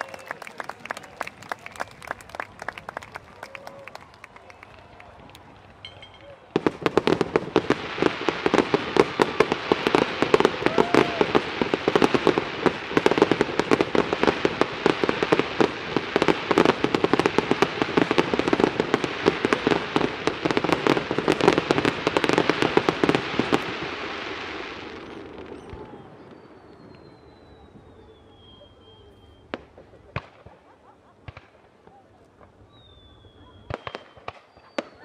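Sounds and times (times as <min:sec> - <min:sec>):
fireworks popping and crackling: 0:00.0 - 0:35.0.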